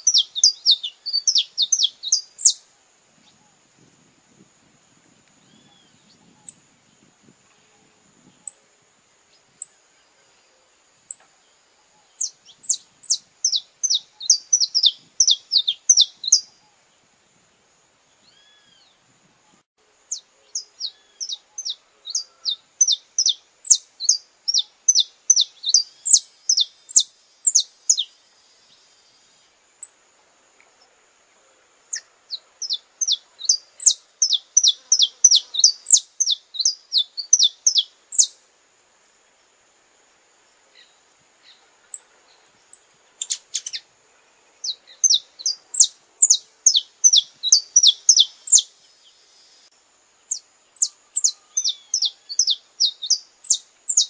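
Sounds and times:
finch singing: 0:00.0 - 0:02.6, 0:12.0 - 0:16.6, 0:20.1 - 0:28.1, 0:31.9 - 0:38.4, 0:42.7 - 0:43.8, 0:44.6 - 0:48.7, 0:50.3 - 0:54.0.

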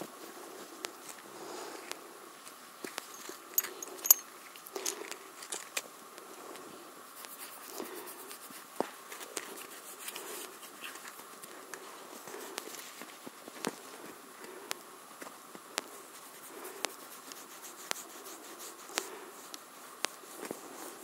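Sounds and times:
horses bumping against camera: 0:02.9 - 0:04.2.

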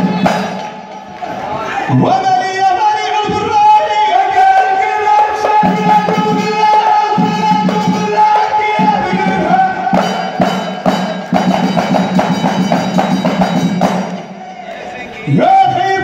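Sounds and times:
frame drums beating: 0:00.0 - 0:01.1, 0:04.6 - 0:14.4.

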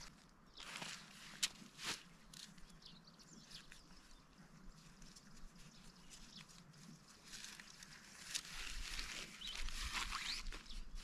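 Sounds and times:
faint scratches and ticks: 0:03.5 - 0:10.6.

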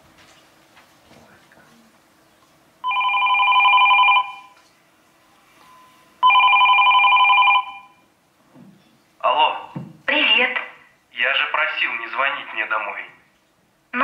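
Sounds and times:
telephone ringing: 0:02.8 - 0:04.6, 0:05.6 - 0:08.1.

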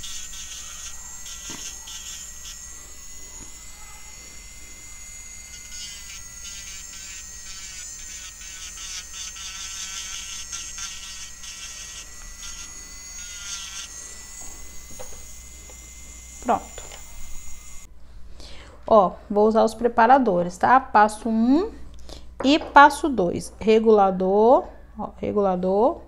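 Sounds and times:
electric nail drill whining: 0:00.0 - 0:17.9.

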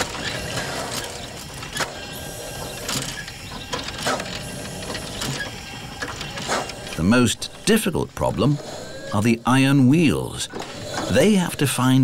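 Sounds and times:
steam locomotive clanking and puffing: 0:00.0 - 0:12.0.

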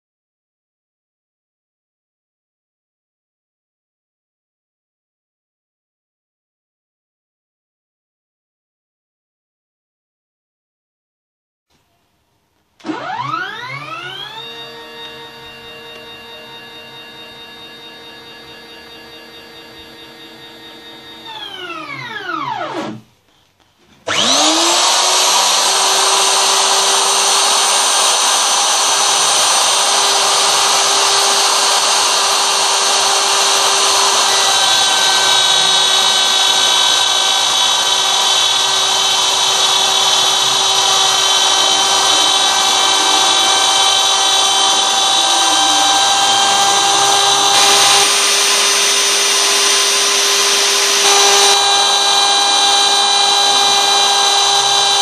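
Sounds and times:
router whining while cutting wood: 0:12.8 - 0:23.1, 0:24.0 - 0:55.0.

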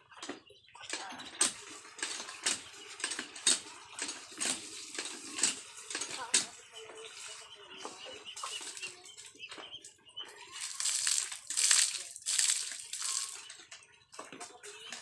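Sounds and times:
water splashing from bucket: 0:10.6 - 0:13.4.

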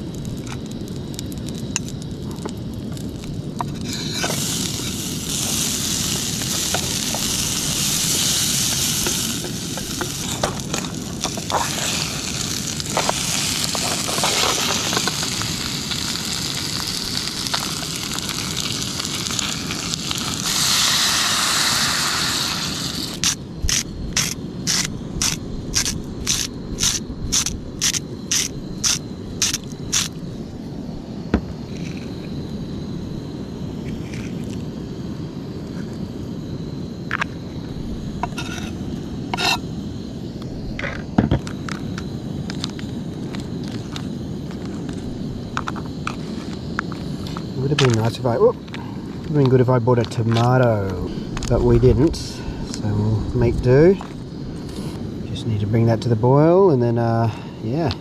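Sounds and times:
steady low rumble: 0:00.0 - 0:56.4
salt grinder crunching: 0:03.6 - 0:30.2
oil sizzling in a pan: 0:03.8 - 0:30.1.

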